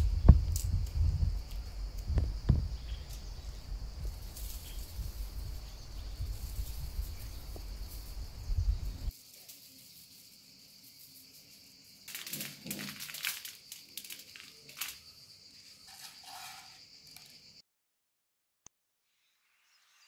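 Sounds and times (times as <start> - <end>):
low rumble: 0.0 - 9.1.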